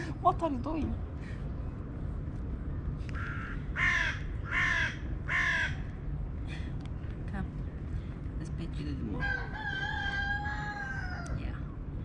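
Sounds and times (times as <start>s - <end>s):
crow cawing: 3.2s - 5.8s.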